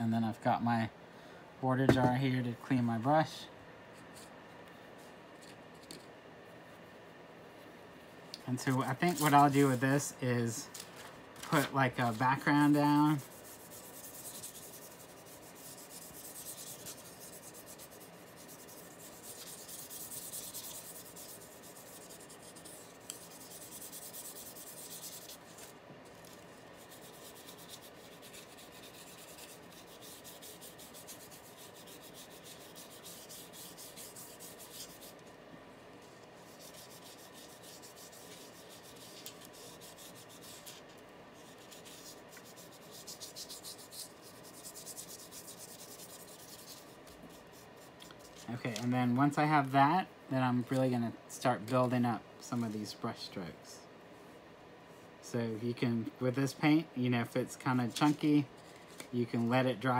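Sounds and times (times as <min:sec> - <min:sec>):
paintbrush rubbing: 0:08.6 - 0:10.6, 0:11.5 - 0:35.4, 0:36.0 - 0:48.9.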